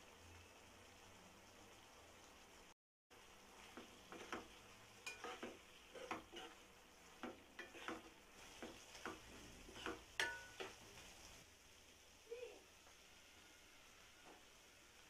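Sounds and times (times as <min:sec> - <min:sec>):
light sizzle: 0:00.0 - 0:15.0
spatula scraping and tapping pan: 0:03.6 - 0:11.1.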